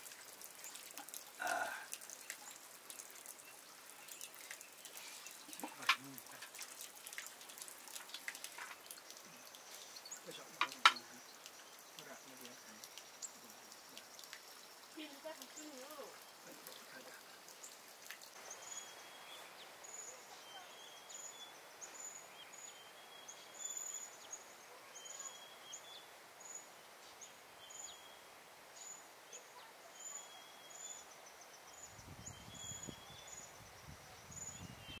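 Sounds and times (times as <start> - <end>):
faint outdoor hiss: 0.0 - 35.0
bird chirping: 8.6 - 35.0.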